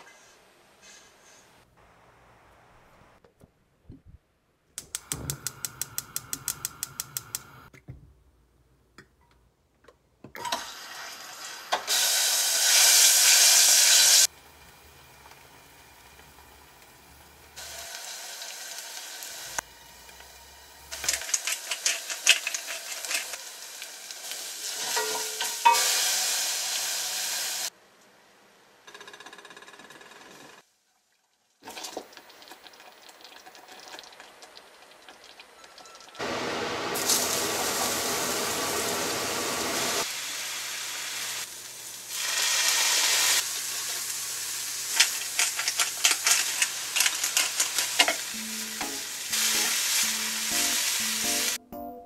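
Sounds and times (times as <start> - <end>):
oil and garlic sizzling: 10.4 - 27.7, 31.0 - 51.6
loud hiss: 23.7 - 27.7, 48.3 - 51.6.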